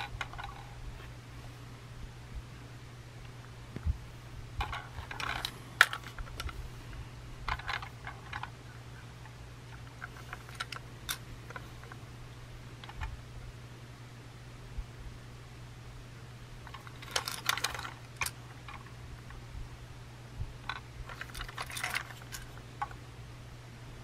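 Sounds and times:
plastic toy train cars clicking: 0:04.6 - 0:06.6, 0:07.5 - 0:08.5, 0:09.7 - 0:11.9, 0:16.7 - 0:18.9, 0:20.7 - 0:23.0.

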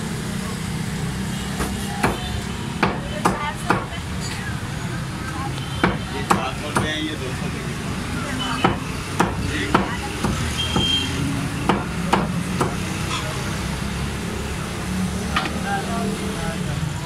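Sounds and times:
knife chopping on wooden block: 0:08.6 - 0:10.9.

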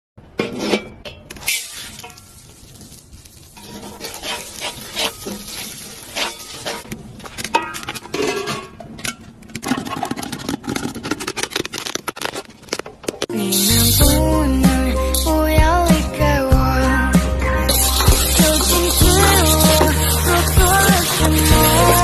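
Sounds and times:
metal ladle scraping a wok: 0:00.4 - 0:02.8, 0:03.4 - 0:06.9, 0:17.7 - 0:22.0
oil sizzling: 0:01.4 - 0:06.9, 0:13.4 - 0:14.2, 0:17.6 - 0:22.0.

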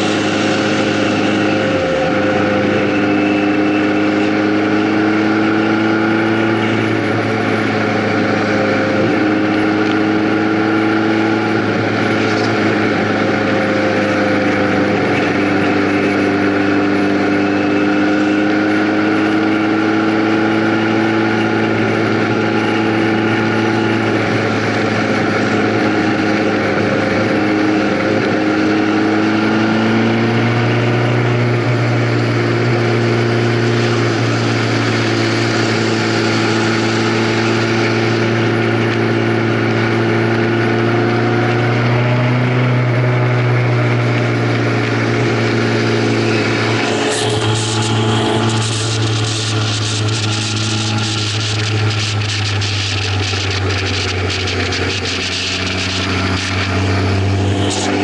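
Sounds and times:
vehicle engine cruising: 0:00.0 - 0:58.0.

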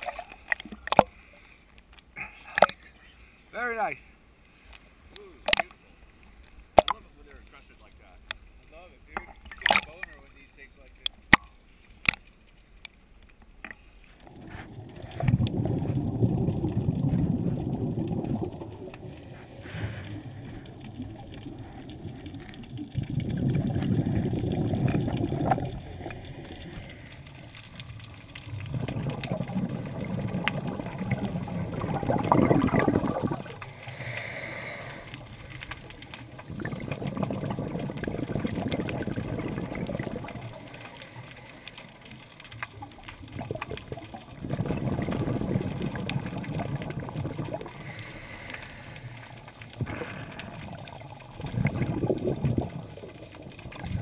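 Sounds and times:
quiet breaths: 0:00.0 - 0:09.4, 0:10.0 - 0:54.0
regulator exhaust bubbles underwater: 0:14.2 - 0:54.0.

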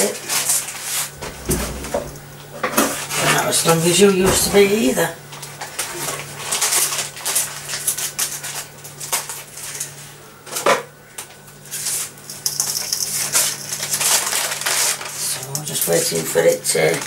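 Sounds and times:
steady low hum: 0:01.1 - 0:05.5.

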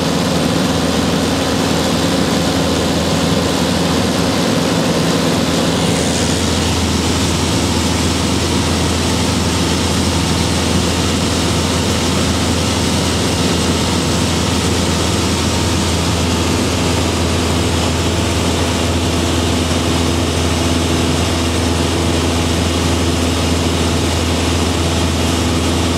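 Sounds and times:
small aircraft engine humming: 0:00.0 - 0:25.9.

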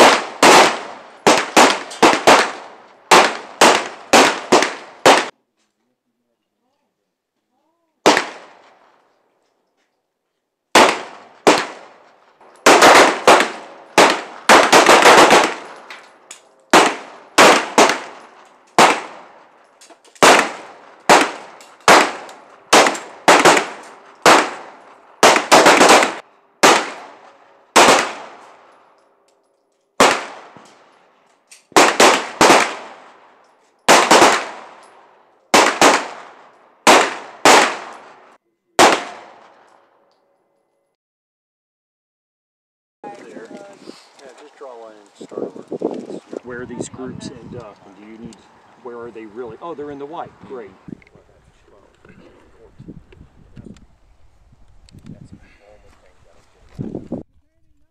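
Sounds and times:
pistol shots: 0:00.0 - 0:05.3, 0:08.0 - 0:09.0, 0:10.7 - 0:16.0, 0:16.7 - 0:19.5, 0:20.1 - 0:28.7, 0:30.0 - 0:31.0, 0:31.6 - 0:39.7.

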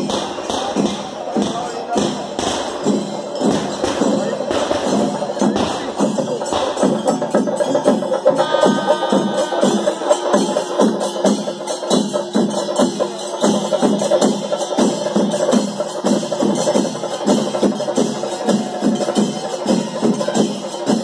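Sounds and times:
drums beating fast rhythm: 0:00.0 - 0:21.0
held wind instrument note: 0:07.5 - 0:11.9.

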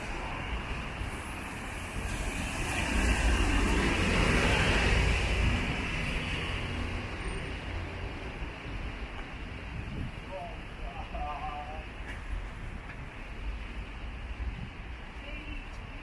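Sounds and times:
vehicle passing on wet road: 0:00.0 - 0:07.2
steady traffic noise: 0:00.0 - 0:16.0.

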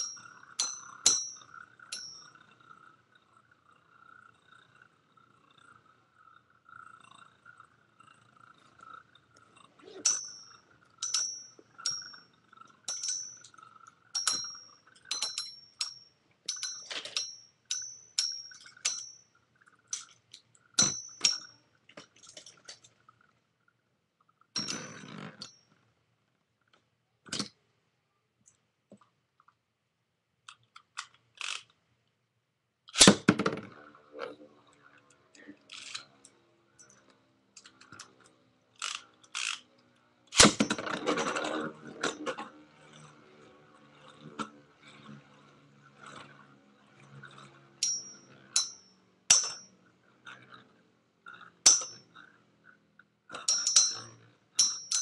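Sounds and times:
spinning tops clashing: 0:00.0 - 0:02.4, 0:09.9 - 0:19.2, 0:47.8 - 0:49.7, 0:51.7 - 0:52.0, 0:53.4 - 0:55.0
steady whir of spinning tops: 0:00.0 - 0:25.9, 0:33.0 - 0:55.0
rattling clatter: 0:09.9 - 0:19.2.

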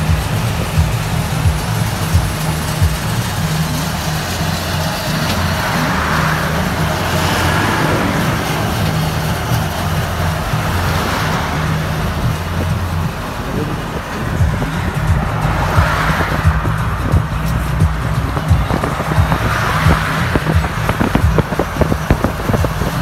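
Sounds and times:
road traffic noise: 0:00.0 - 0:23.0.

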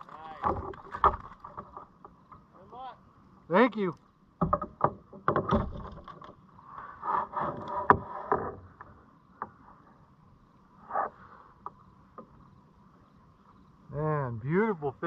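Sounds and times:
fishing gear knocking and scraping: 0:00.0 - 0:02.4
faint steady hum: 0:00.0 - 0:15.0.

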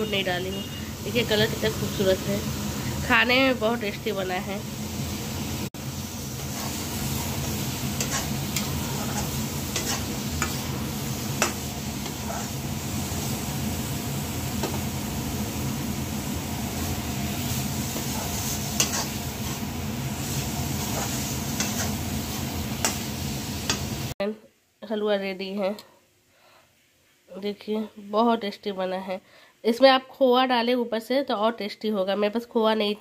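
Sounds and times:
ghee sizzling: 0:00.0 - 0:24.2
spatula scraping metal pan: 0:06.4 - 0:10.7, 0:18.0 - 0:19.6, 0:20.8 - 0:22.0.

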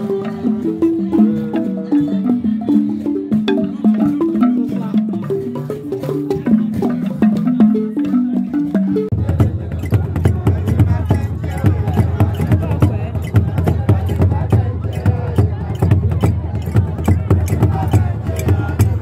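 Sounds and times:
wooden xylophone played with mallets: 0:00.0 - 0:19.0.

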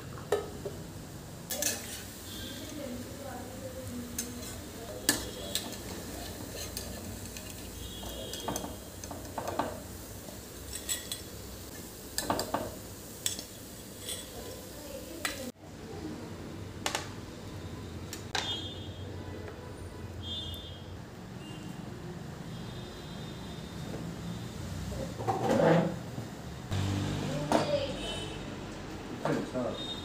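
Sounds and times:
fritters sizzling in oil: 0:00.0 - 0:15.6.

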